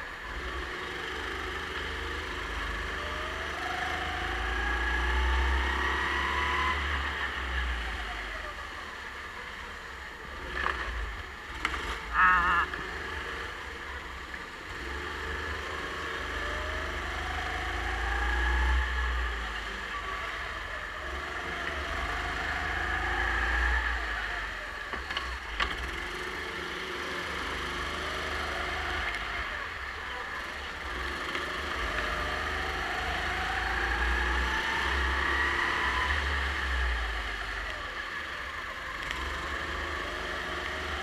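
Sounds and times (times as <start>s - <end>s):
kart engine accelerating: 0.0s - 41.0s.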